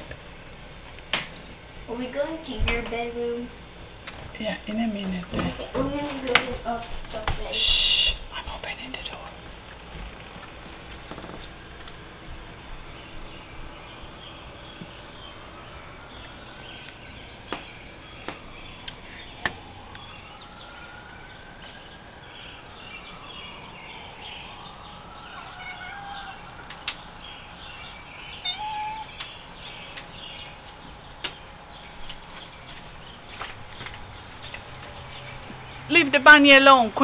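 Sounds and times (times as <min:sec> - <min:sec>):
birds chirping: 0:01.3 - 0:37.0
cat meowing: 0:25.4 - 0:26.5, 0:28.4 - 0:29.2
sharp clicks: 0:26.7 - 0:27.0.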